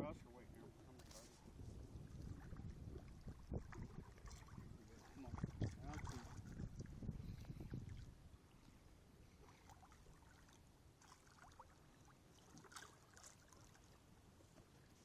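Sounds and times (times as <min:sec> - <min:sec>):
fish splashing water: 0:09.4 - 0:14.0.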